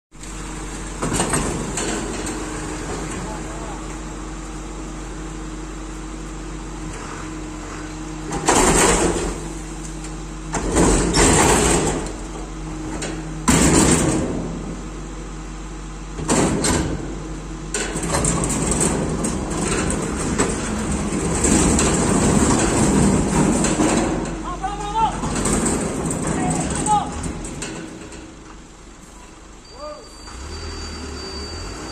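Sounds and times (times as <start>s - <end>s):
garbage truck engine running: 0.1s - 31.9s
bin rattling and clanging: 25.1s - 28.3s.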